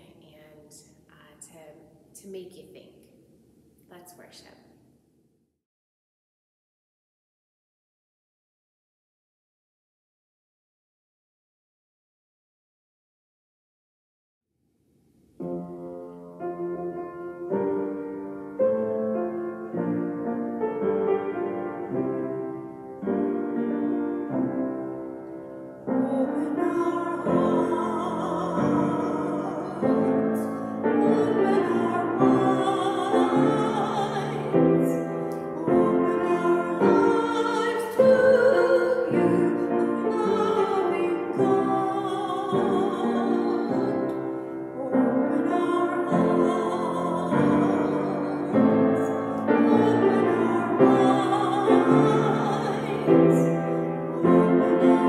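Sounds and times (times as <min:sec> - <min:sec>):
piano chords: 0:15.4 - 0:55.0
woman singing a hymn: 0:25.9 - 0:55.0.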